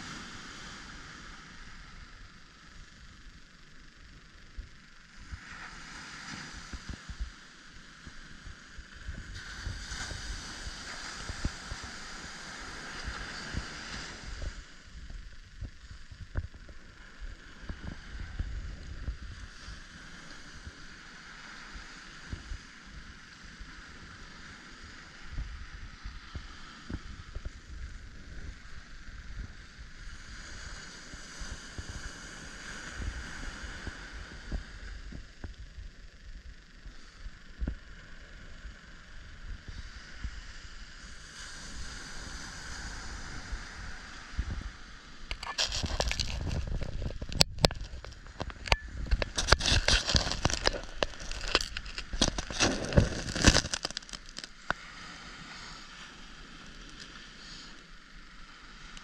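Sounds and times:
wind buffeting microphone: 41.8 - 54.2.

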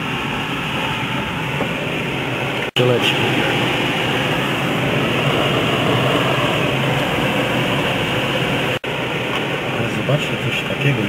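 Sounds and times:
air rushing past canopy: 0.0 - 9.7.

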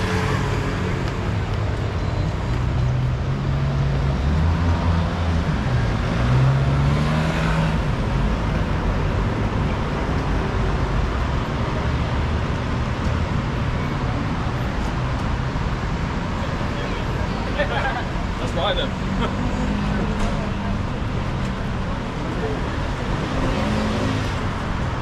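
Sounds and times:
vehicle engines running: 0.0 - 25.0.

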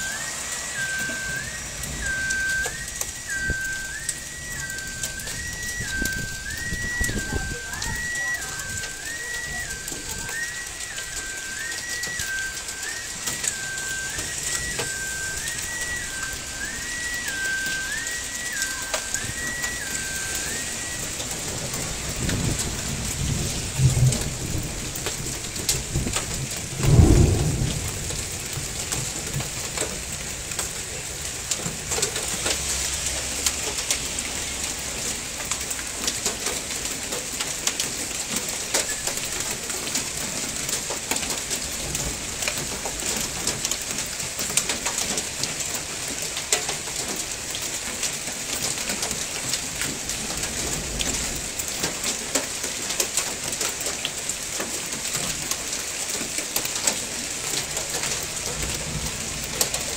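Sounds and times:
thunder rumbling: 0.0 - 43.6, 57.6 - 59.9
heavy rain and hail pelting: 0.0 - 59.9.

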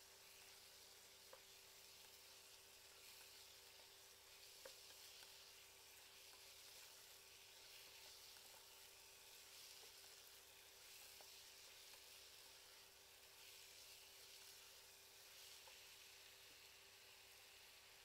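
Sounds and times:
meat sizzling in a pan: 0.0 - 18.0
spatula scraping and tapping: 4.4 - 5.4.

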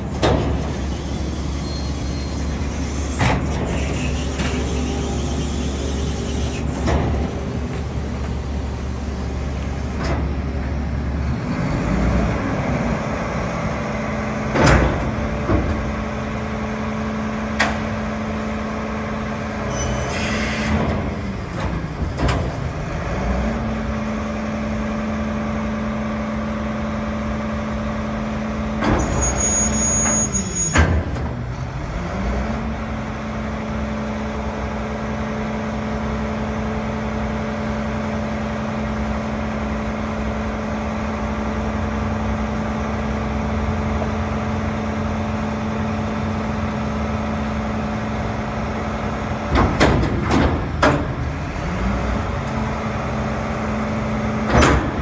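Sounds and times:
hydraulic panels clunking: 0.0 - 10.5, 14.5 - 16.2, 49.5 - 51.4
diesel engine under load: 0.0 - 55.0.

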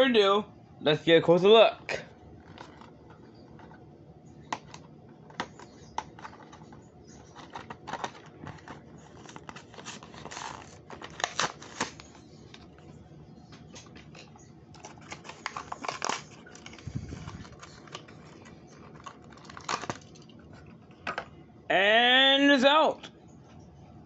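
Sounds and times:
plastic packaging clicks and crackles: 2.4 - 3.8, 4.4 - 12.9, 13.6 - 21.3
plastic packaging snapping: 7.3 - 12.2, 13.8 - 20.3.

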